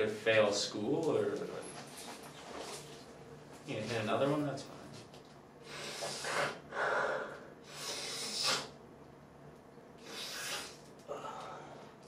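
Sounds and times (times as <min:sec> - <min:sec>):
man sniffing noisily: 0:05.7 - 0:08.8, 0:10.0 - 0:11.7.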